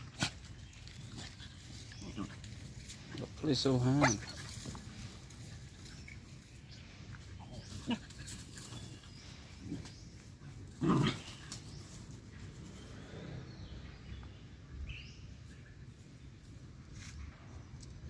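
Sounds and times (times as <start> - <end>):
dogs playing roughly: 0.0 - 12.9.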